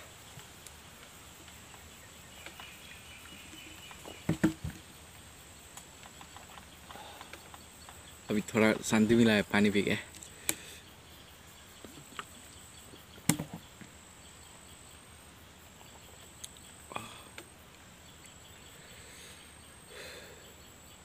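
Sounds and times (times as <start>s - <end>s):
insects droning: 0.0s - 21.0s
plastic bottle knocking on table: 4.2s - 4.8s.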